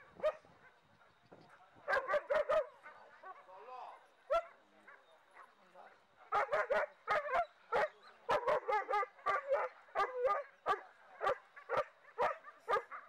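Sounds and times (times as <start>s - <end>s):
dog barking rapidly: 1.9s - 2.8s, 6.3s - 13.0s.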